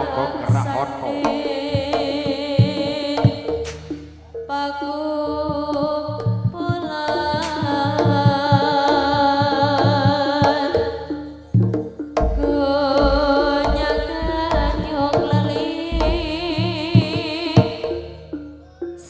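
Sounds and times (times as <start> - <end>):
gamelan music: 0.0 - 19.0
drum low strokes: 12.2 - 17.3.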